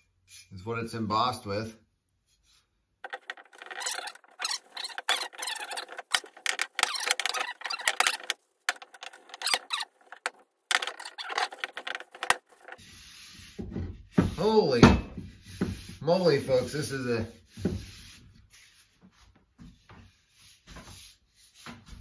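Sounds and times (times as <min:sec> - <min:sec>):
rag rubbing wax on wood: 0:03.0 - 0:13.5.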